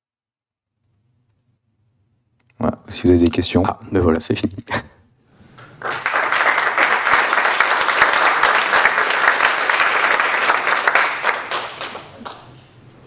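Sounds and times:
audience applauding: 5.5s - 12.7s.

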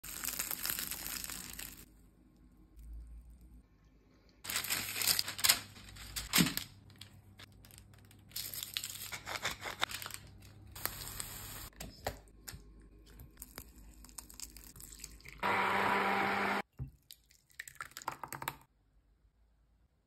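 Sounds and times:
baking paper crinkling: 0.0s - 1.9s, 4.4s - 11.3s.

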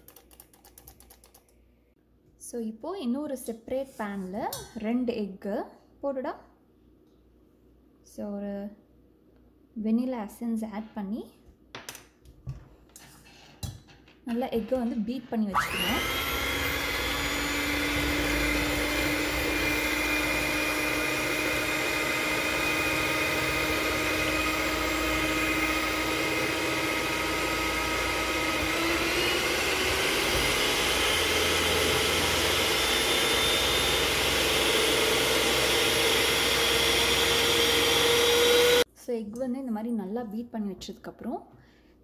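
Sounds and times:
electric hand mixer whining: 15.5s - 38.9s.

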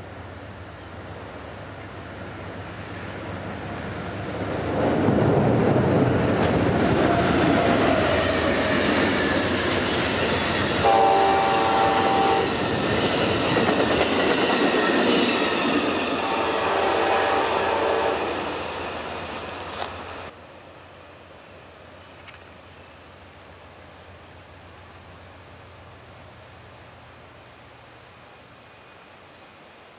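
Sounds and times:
train wheels clattering on rails: 4.1s - 16.4s
train horn blasts: 10.8s - 12.6s, 16.2s - 18.4s.

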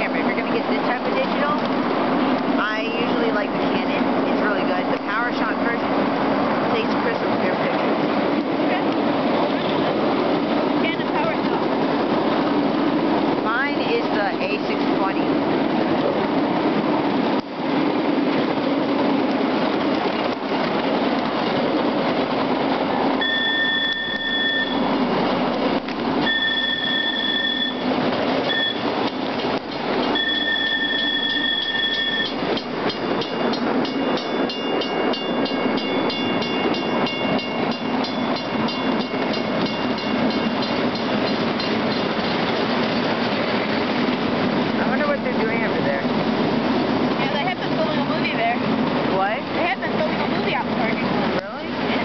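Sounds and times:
miniature train rumbling: 0.0s - 52.0s
wheels clicking over rail joints: 0.0s - 52.0s
train whistle blasts: 23.2s - 24.9s, 26.2s - 27.8s, 30.2s - 32.4s.

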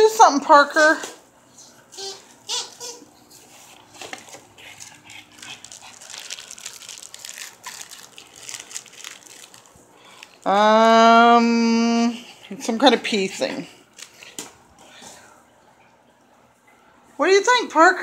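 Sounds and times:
packing paper crinkling: 3.4s - 10.6s, 13.9s - 14.4s.

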